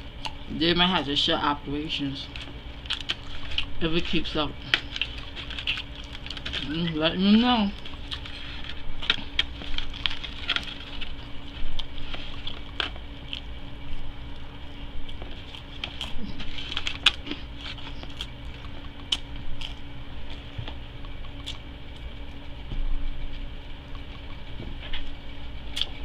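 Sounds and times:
foil wrapper crinkling: 2.2 - 14.4, 15.0 - 20.5
chewing mouth sounds: 7.7 - 22.6, 25.7 - 26.0.

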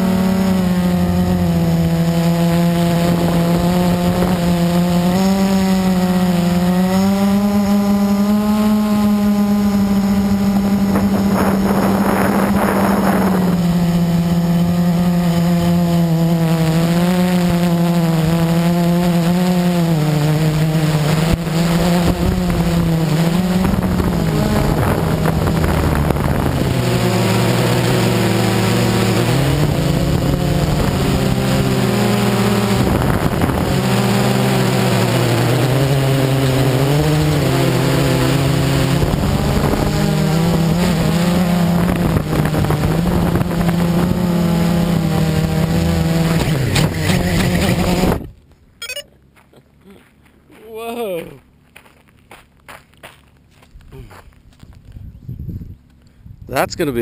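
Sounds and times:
quadcopter propellers buzzing: 0.0 - 49.0, 49.8 - 51.6, 55.3 - 57.0.

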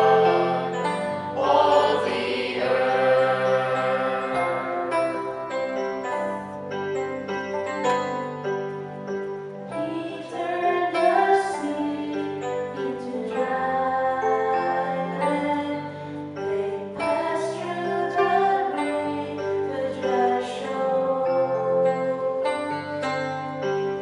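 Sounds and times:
electric keyboard: 0.0 - 24.0
woman singing: 9.9 - 15.9, 16.5 - 22.2.

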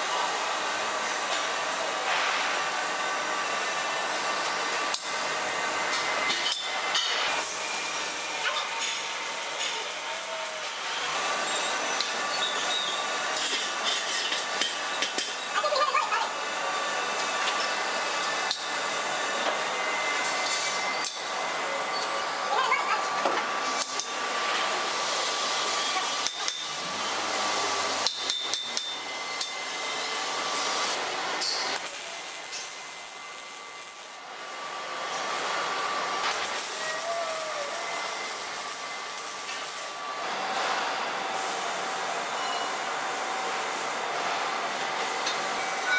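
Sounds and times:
welding arc crackle: 7.3 - 11.1, 23.8 - 35.4, 36.2 - 40.6, 41.3 - 44.0.

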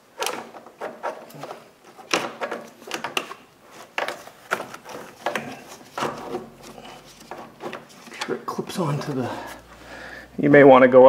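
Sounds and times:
plastic fan knocking and scraping: 0.2 - 9.3.

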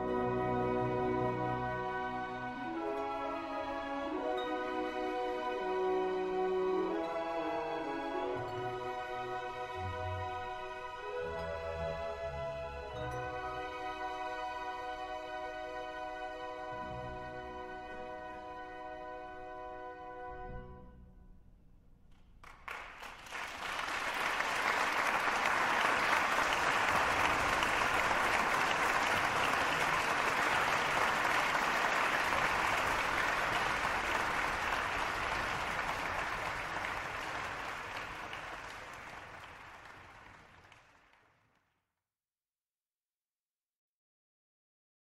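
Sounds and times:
music: 0.0 - 41.8
audience applauding: 22.4 - 41.7.

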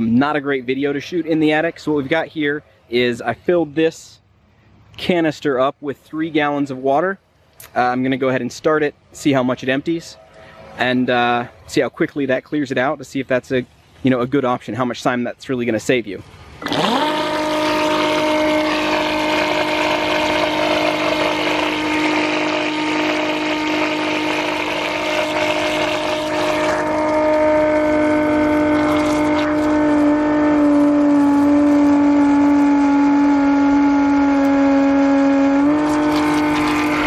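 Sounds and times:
pump motor humming: 16.2 - 37.0
water spraying: 16.2 - 37.0.

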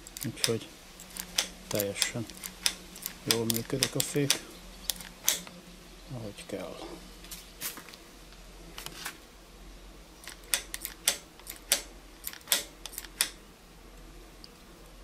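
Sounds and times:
bicycle brake lever clicking: 0.0 - 5.5, 10.2 - 13.4.

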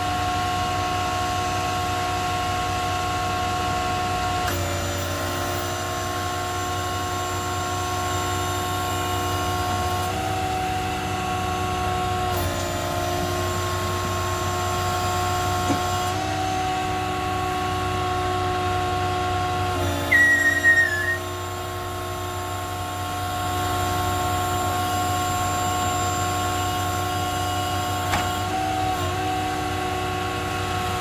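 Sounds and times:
hydraulic pump whining: 4.0 - 31.0
brief high squeal: 19.9 - 21.4.

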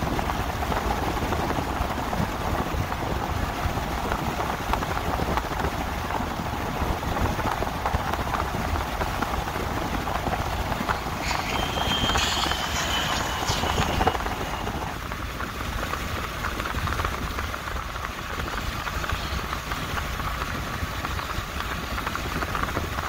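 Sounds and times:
car road noise rumble: 0.0 - 23.0
faint high whine: 8.0 - 22.8.

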